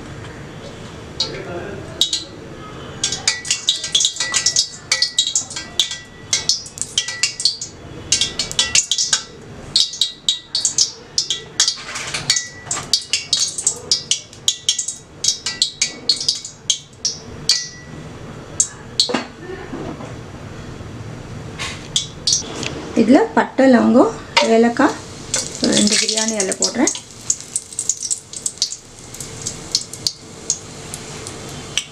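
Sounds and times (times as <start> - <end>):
ghee sizzling in hot oil: 3.0 - 17.8, 24.4 - 31.9.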